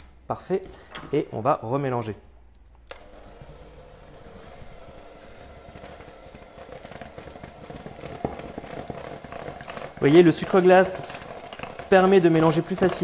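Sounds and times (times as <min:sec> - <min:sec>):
electric mixer motor hum: 0:02.8 - 0:13.0.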